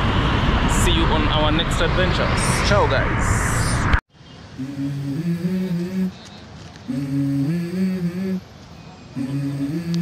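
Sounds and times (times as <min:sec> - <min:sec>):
hummed melody: 0:04.6 - 0:06.3, 0:06.9 - 0:10.0.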